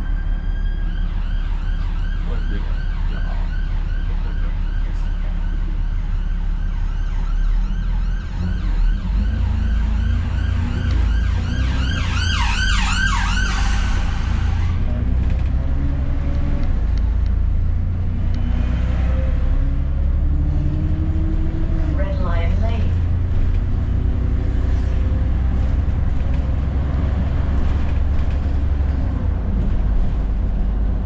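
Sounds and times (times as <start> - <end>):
siren yelping: 0.0 - 14.8
bus engine running: 0.0 - 31.0.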